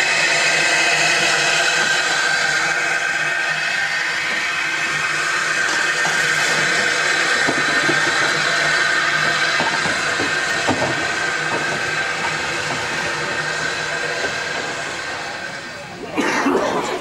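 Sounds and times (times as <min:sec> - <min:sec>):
steam locomotive hissing: 0:00.0 - 0:17.0.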